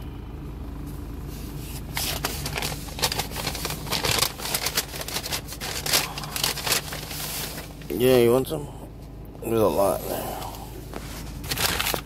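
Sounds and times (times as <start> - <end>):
paper bag rustling: 1.8 - 7.9, 11.0 - 12.0.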